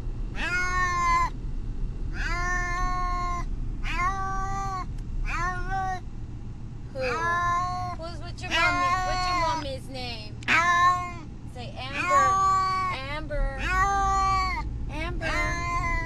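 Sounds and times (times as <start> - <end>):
car road noise: 0.0 - 16.0
cat meowing: 0.4 - 1.3, 2.2 - 6.0, 7.0 - 9.6, 10.4 - 11.3, 11.9 - 13.0, 13.6 - 14.6, 15.2 - 16.0.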